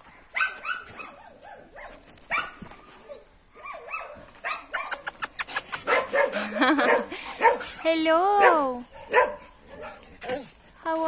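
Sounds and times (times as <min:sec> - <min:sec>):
dog barking: 0:05.8 - 0:07.7, 0:08.3 - 0:10.5.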